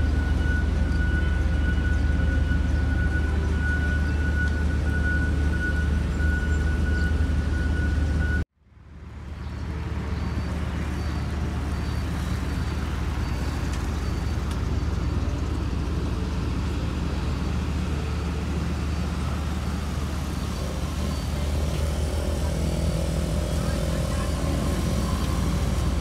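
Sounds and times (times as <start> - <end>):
traffic and machinery engine hum: 0.0 - 26.0.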